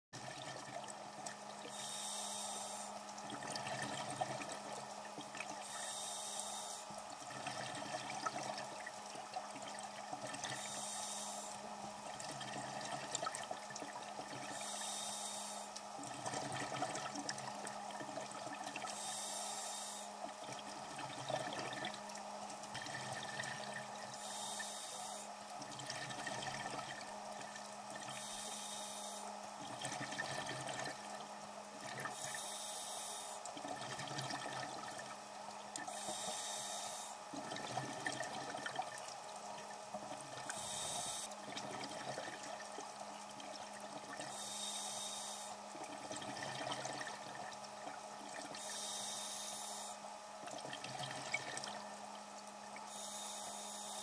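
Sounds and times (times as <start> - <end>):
diver breathing through regulator: 1.7 - 3.0, 5.6 - 6.9, 10.5 - 11.6, 14.5 - 15.8, 18.9 - 20.2, 24.2 - 25.4, 28.1 - 29.3, 32.1 - 33.4, 35.9 - 37.2, 40.5 - 41.3, 44.3 - 45.6, 48.6 - 50.0, 52.9 - 54.0.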